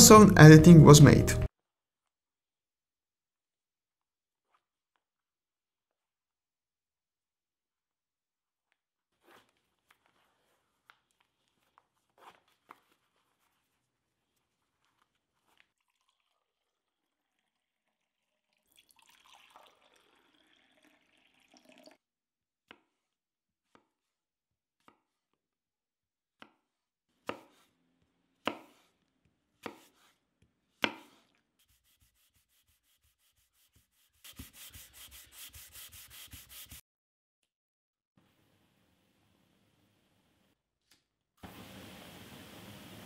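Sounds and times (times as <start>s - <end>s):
knife chopping on wooden board: 27.2s - 27.7s, 28.4s - 28.9s, 29.6s - 30.1s, 30.8s - 31.3s
sanding block rubbing wood: 31.6s - 36.8s.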